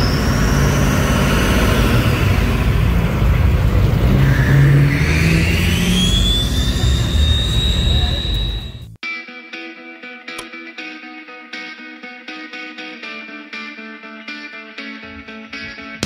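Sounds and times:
car engine rumbling: 0.0s - 9.0s
high whine rising in pitch: 0.0s - 9.0s.

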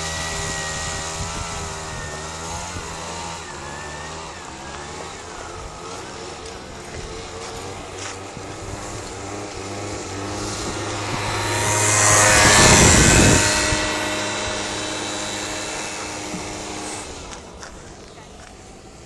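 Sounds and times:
moped engine revving high: 0.0s - 19.0s
tyre scraping on ice: 3.2s - 18.2s.

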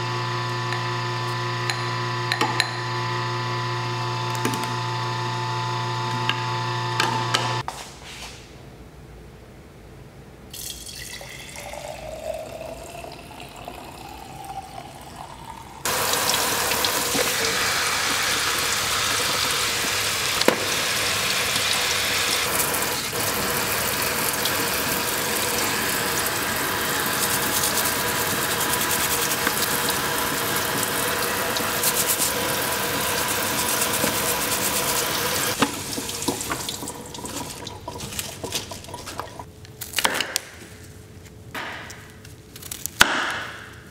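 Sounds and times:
liquid poured into a glass jar: 10.5s - 16.0s
kitchen tap running: 10.6s - 39.5s
greens rinsed in a colander: 15.9s - 39.5s.

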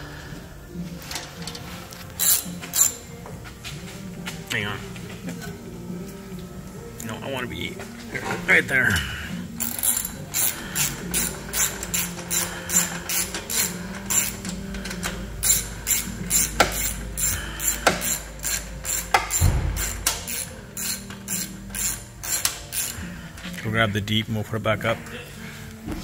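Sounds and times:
ratchet wrench clicking: 1.1s - 3.0s, 9.6s - 23.2s.

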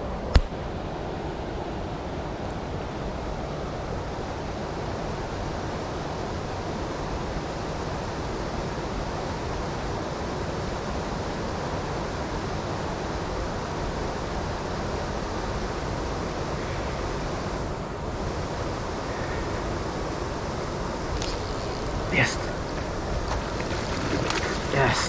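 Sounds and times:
water rushing over a weir: 21.0s - 25.0s.

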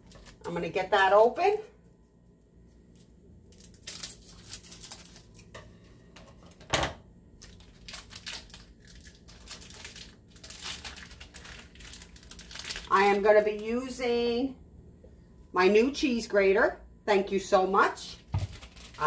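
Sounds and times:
plastic wrapper crinkling: 0.0s - 0.5s, 2.8s - 5.5s, 7.4s - 13.6s, 18.2s - 19.0s.

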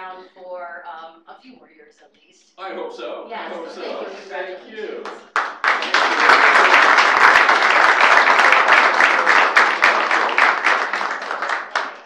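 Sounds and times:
crowd applauding: 4.8s - 12.0s.

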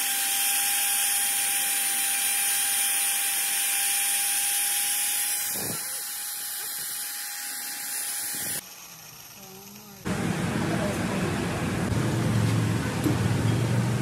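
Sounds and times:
electric drill boring into metal: 0.0s - 10.1s.

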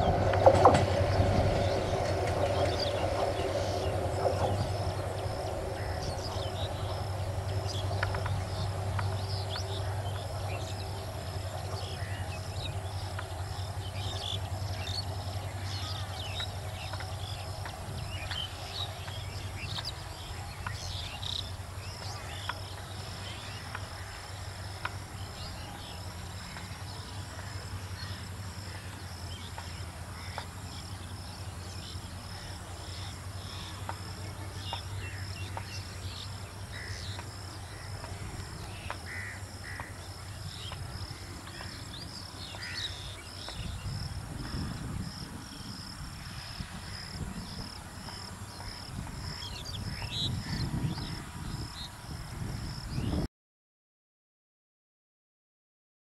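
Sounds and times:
low rumble: 0.0s - 20.1s
birds calling: 0.0s - 27.2s, 31.8s - 44.7s
distant train hum: 0.0s - 52.8s
insect drone: 0.0s - 53.3s
crows cawing: 39.1s - 39.9s, 42.6s - 42.9s.

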